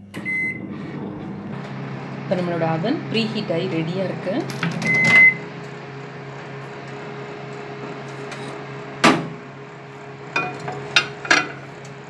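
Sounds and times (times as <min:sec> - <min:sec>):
steady low hum: 0:00.0 - 0:12.0
sharp clunk of microwave oven: 0:04.6 - 0:05.4, 0:09.0 - 0:09.5.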